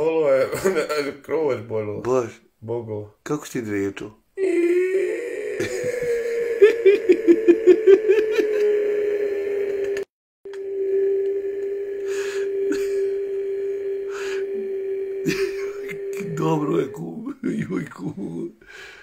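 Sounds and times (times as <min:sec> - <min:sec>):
man's high-pitched wail: 0:04.4 - 0:17.9.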